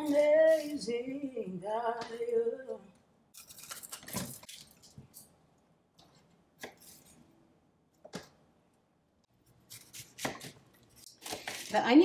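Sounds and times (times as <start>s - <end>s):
knife slicing pepper: 6.6s - 7.2s, 9.5s - 11.8s.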